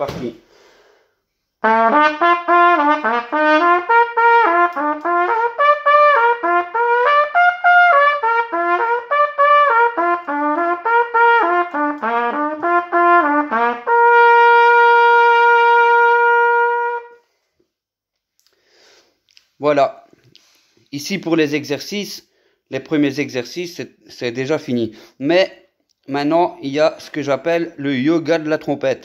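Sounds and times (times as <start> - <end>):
trumpet playing arpeggios: 1.6 - 17.2.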